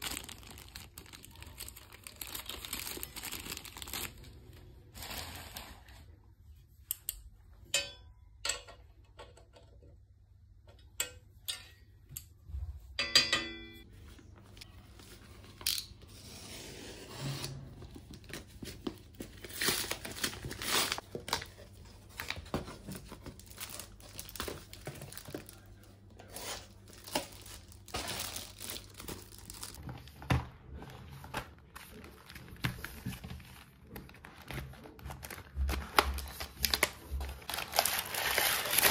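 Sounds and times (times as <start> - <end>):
paper tearing and crumpling: 19.4 - 21.0, 36.6 - 38.9.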